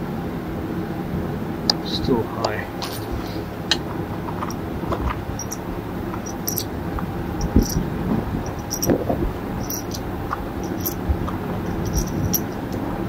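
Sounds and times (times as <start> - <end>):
large fan humming: 0.0 - 13.0
cartridges clinking: 2.8 - 12.8.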